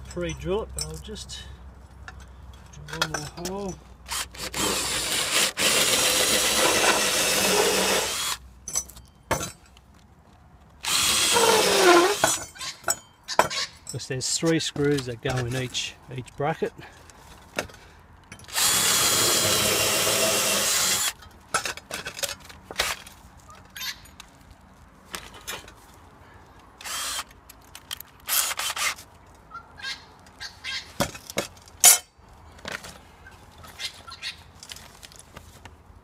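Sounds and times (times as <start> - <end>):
hardware clicking and knocking: 2.1 - 3.8
cordless drill drilling into wood: 4.1 - 8.4, 10.8 - 12.2, 18.5 - 21.1, 26.8 - 27.3.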